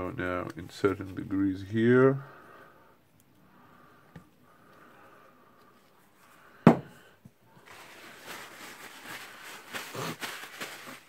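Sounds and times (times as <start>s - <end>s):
tin knocking on wooden workbench: 6.7s - 6.9s.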